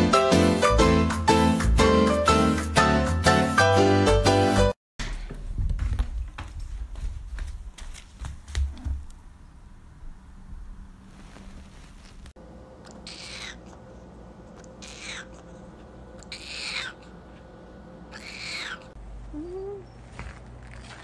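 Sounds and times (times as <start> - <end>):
cat meowing: 18.1 - 19.8.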